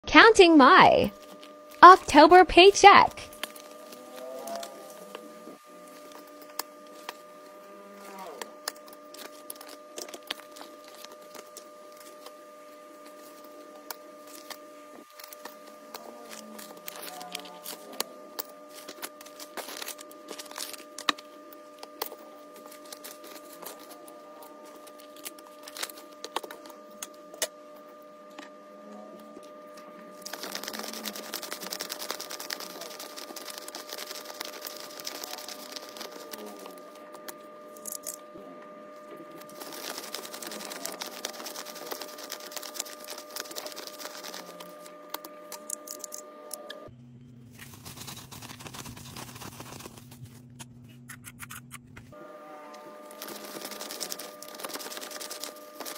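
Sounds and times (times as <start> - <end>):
banknotes riffled rustle: 30.2 - 37.0, 39.3 - 44.9, 53.1 - 55.9.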